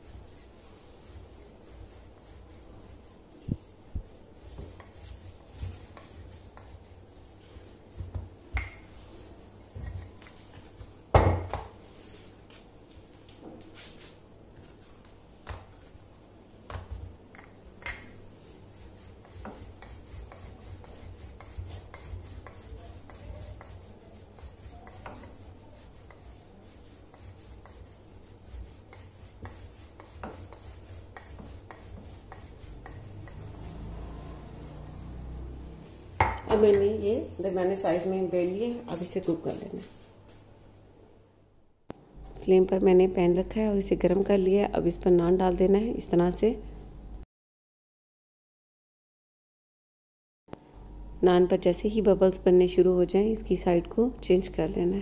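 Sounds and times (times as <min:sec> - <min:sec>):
rolling pin rubbing on dough: 0:00.0 - 0:40.5.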